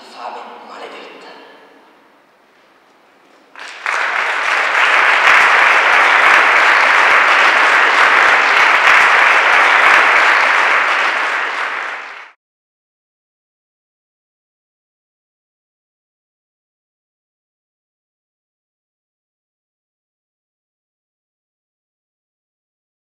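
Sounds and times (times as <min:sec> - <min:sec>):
audience applauding: 0:03.5 - 0:12.4.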